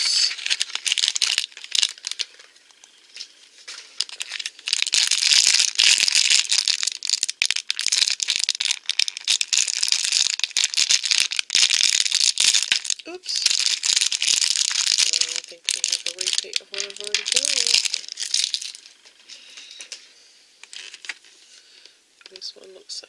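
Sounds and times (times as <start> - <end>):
foil wrapper crinkling: 0.0 - 22.5.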